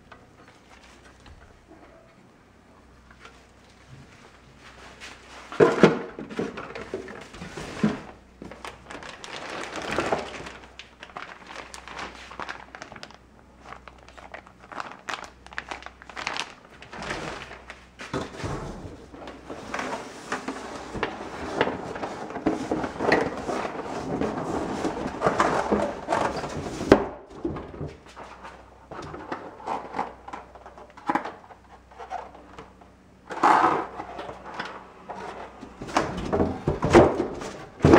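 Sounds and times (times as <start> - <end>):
plastic bags crinkling: 8.4 - 18.0.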